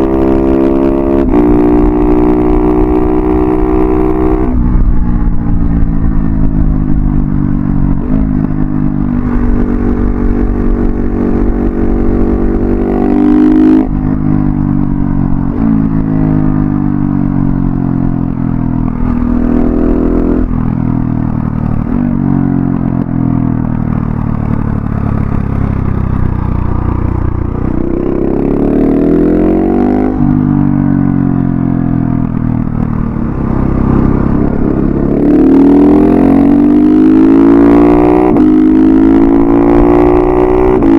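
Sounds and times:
motorcycle engine revving: 0.0 - 40.9.

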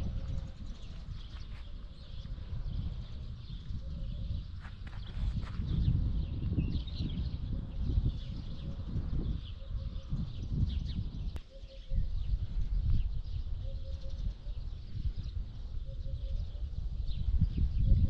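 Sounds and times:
birds chirping: 0.0 - 18.0
wind buffeting microphone: 0.0 - 18.0
low repeated bird call: 6.6 - 18.0.

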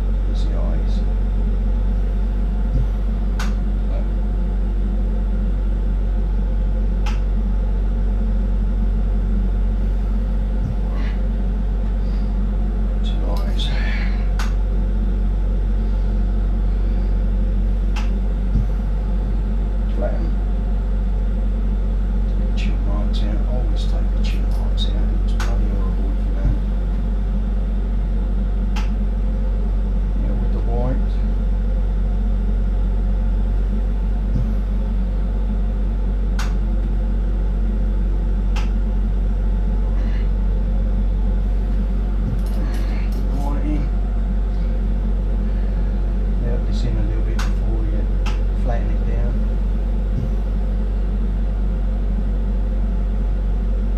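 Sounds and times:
torch burning rumble: 0.0 - 53.9
sharp click: 2.8 - 3.6, 7.0 - 7.3, 36.4 - 36.6.

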